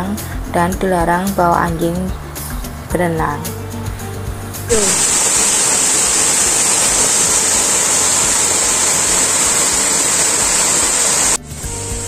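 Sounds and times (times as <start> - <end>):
waterfall rushing: 4.7 - 11.7.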